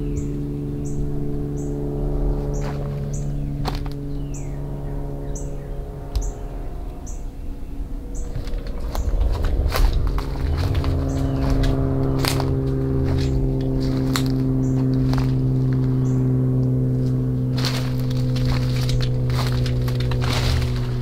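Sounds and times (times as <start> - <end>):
droning background music: 0.0 - 21.0
footsteps crunching through leaves: 2.4 - 4.0, 8.0 - 21.0
twigs snapping: 8.2 - 16.1, 17.0 - 21.0.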